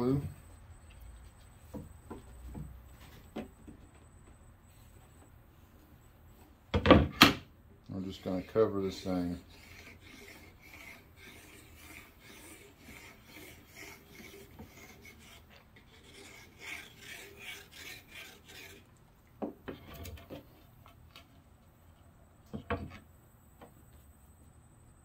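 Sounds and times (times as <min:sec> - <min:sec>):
nozzle scratching on tape: 0:08.1 - 0:19.0.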